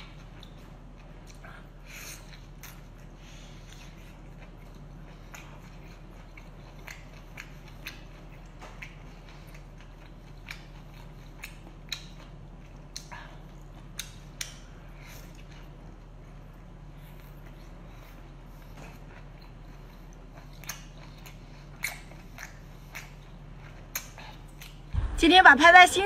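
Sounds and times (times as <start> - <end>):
person chewing: 0.0 - 25.0
low electrical hum: 0.0 - 26.0.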